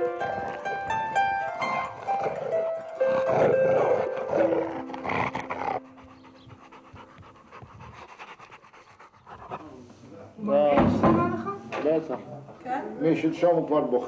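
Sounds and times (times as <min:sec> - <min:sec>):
background music melody: 0:00.0 - 0:07.8
dog panting: 0:01.6 - 0:09.9.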